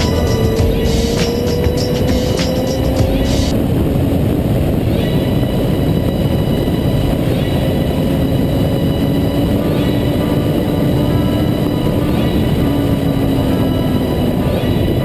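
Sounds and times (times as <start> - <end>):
motorcycle engine running: 0.0 - 3.6
wind rush on microphone: 0.0 - 15.0.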